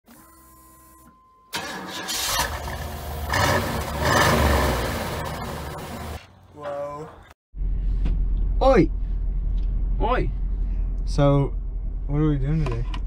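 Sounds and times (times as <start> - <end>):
engine starting and exhaust rumble: 1.6 - 6.2, 7.6 - 13.0.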